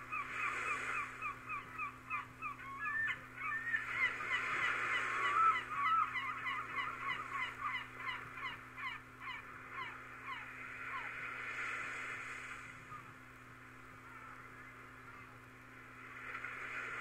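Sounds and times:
flock of birds calling: 0:00.0 - 0:11.2.

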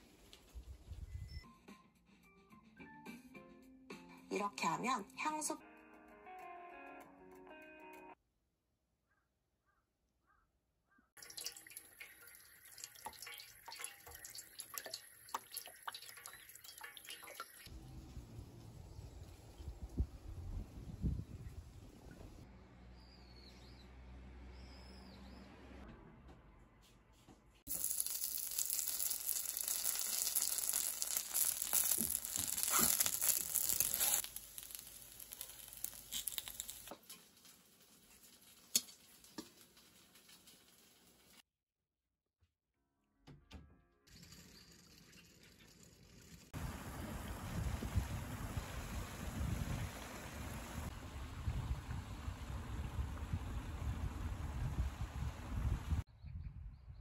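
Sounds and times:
water dripping into plastic basin: 0:11.2 - 0:17.7
rice cake sizzling in oil: 0:27.7 - 0:41.4.

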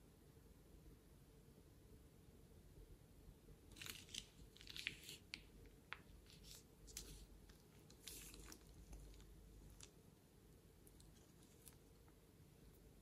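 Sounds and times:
plastic bag crinkling: 0:03.7 - 0:09.9.

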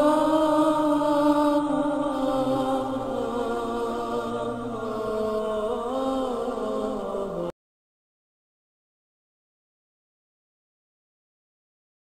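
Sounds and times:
vocal chanting: 0:00.0 - 0:07.6.

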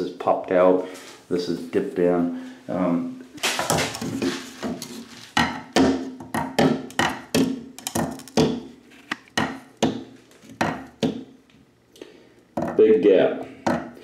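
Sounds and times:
spirit level knocking on tile: 0:03.6 - 0:08.7, 0:09.4 - 0:11.3.

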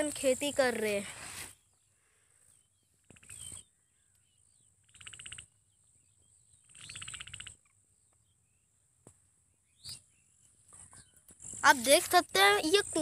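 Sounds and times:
faint bird chirps: 0:00.2 - 0:11.8.

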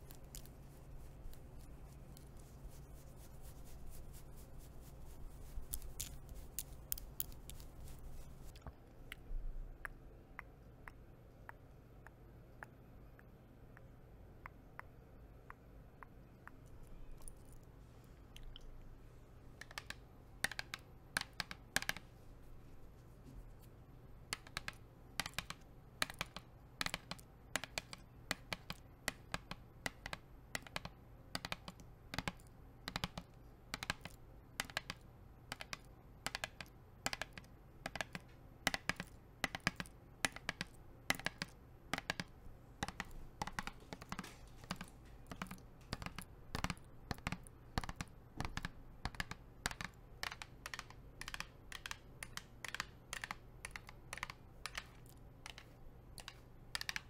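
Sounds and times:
nails tapping on water bottle: 0:24.3 - 0:54.9.

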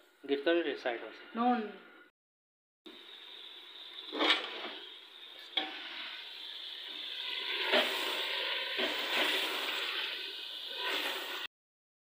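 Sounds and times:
food sizzling in a pot: 0:02.9 - 0:11.5.

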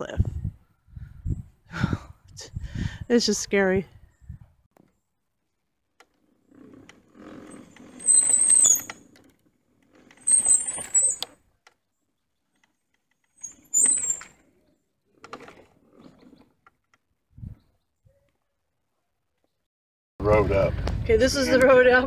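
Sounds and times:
mobility scooter whining and rattling: 0:04.8 - 0:18.5
high squeal: 0:07.8 - 0:09.0, 0:10.2 - 0:11.3, 0:13.4 - 0:14.4.

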